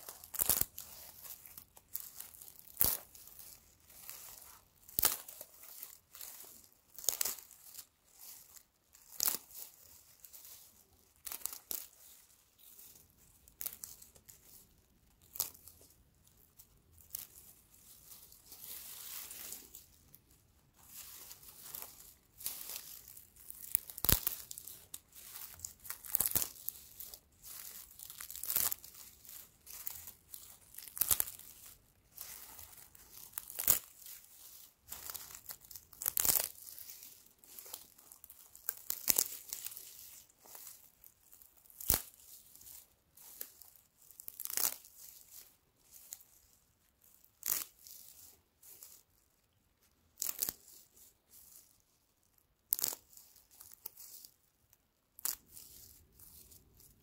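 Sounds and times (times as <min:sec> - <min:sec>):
dry straw rustling and snapping: 0:00.0 - 0:09.7, 0:20.8 - 0:45.4.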